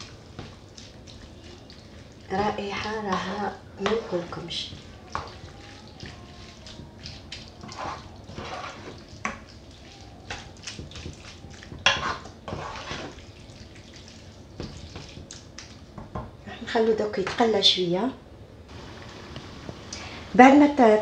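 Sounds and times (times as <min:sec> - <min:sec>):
wooden spoon scraping a pan: 0:00.0 - 0:09.5, 0:10.3 - 0:13.3
food sizzling in a frying pan: 0:07.6 - 0:09.5.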